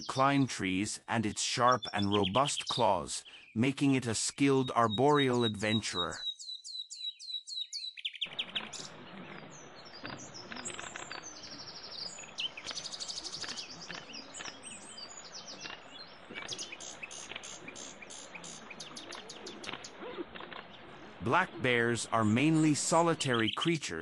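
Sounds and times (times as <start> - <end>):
songbirds chirping and trilling: 0.0 - 24.0
faint outdoor hiss: 21.0 - 24.0.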